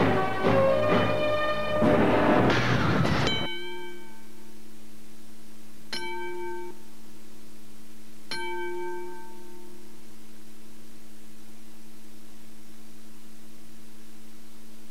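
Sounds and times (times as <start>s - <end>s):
steady low hum: 0.0s - 14.9s
bell-like chime: 3.3s - 4.4s.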